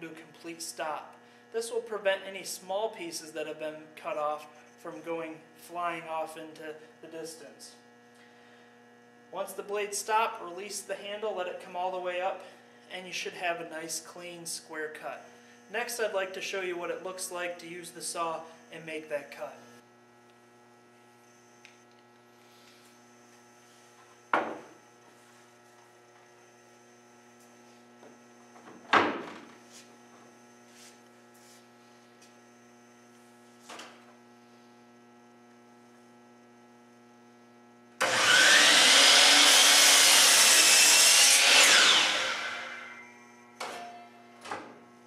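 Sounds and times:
steady electrical hum: 0.0s - 45.0s
miter saw cutting wood: 38.0s - 43.3s.

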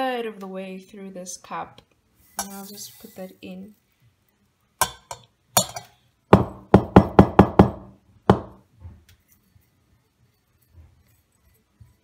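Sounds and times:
ceramic mug knocking: 4.8s - 8.6s.

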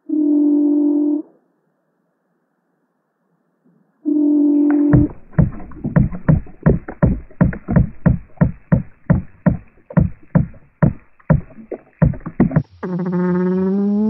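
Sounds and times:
low-pitched knocking pulses: 4.9s - 14.0s.

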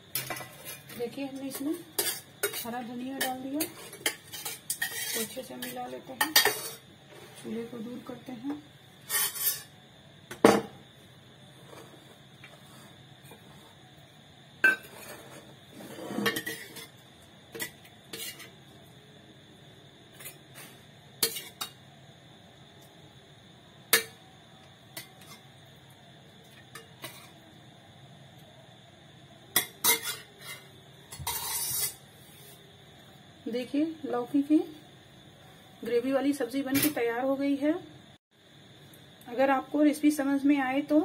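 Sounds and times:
ladle scraping steel pot: 3.2s - 5.4s, 9.1s - 9.7s, 29.8s - 32.0s.

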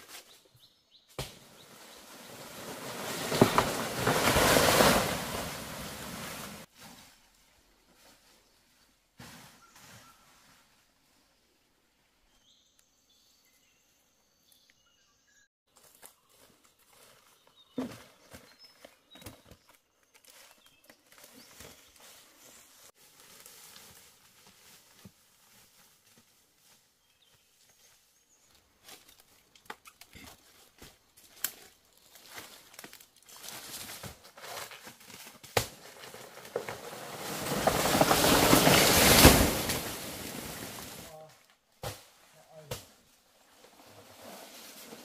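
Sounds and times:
plant toppling through dry foliage: 1.2s - 6.7s, 28.8s - 41.1s
footsteps in dry leaves: 20.2s - 27.4s, 30.4s - 41.1s.

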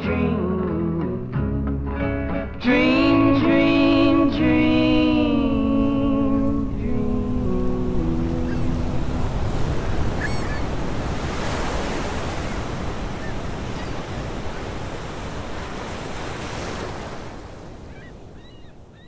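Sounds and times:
ocean surf breaking: 2.8s - 19.0s
bird call: 10.1s - 10.8s, 17.9s - 19.0s.

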